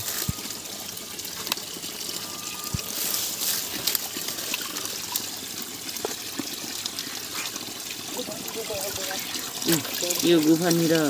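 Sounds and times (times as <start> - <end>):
stream trickling over rocks: 0.0 - 11.0.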